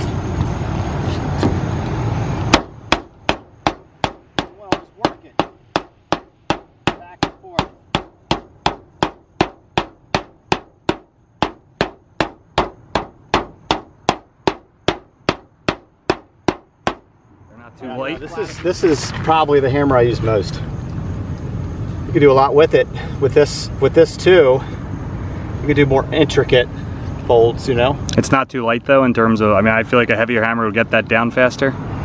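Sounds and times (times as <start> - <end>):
loud steady rumbling noise: 0.0 - 32.0
hammer striking metal roof seam: 2.5 - 17.1.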